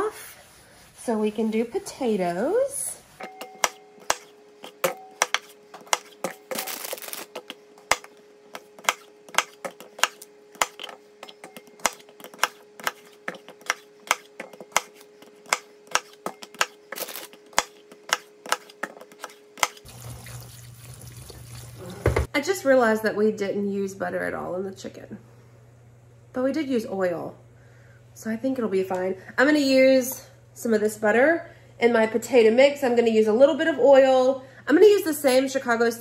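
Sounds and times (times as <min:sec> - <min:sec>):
faint steady hum: 0:00.0 - 0:36.0
knife chopping on cutting board: 0:03.6 - 0:06.4, 0:08.8 - 0:16.8, 0:17.5 - 0:19.8.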